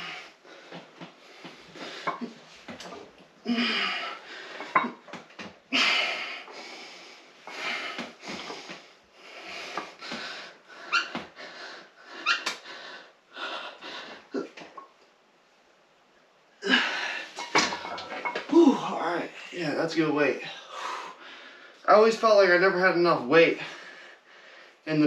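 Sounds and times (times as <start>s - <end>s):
man breathing hard: 5.7s - 14.5s, 23.6s - 24.8s.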